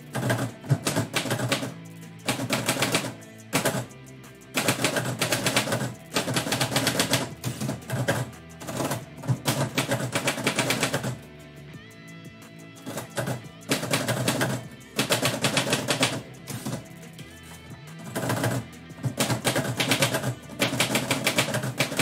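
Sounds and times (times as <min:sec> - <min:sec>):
background music: 0:00.0 - 0:22.0.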